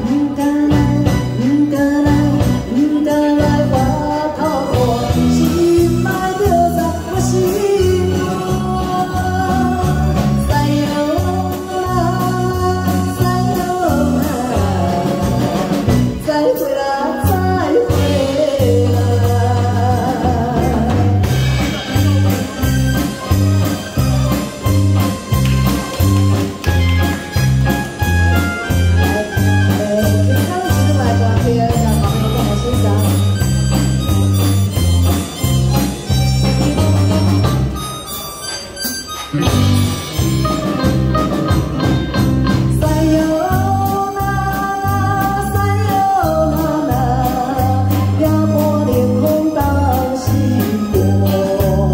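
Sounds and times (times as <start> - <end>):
woman singing pop song: 0.0 - 21.3, 29.0 - 33.3, 42.7 - 51.9
amplified band accompaniment: 0.0 - 51.9.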